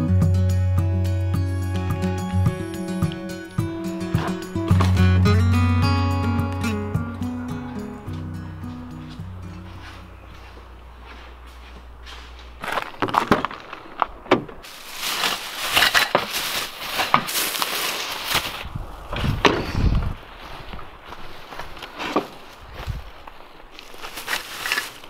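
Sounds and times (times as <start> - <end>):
plastic bags crinkling: 12.4 - 18.7, 20.9 - 25.0.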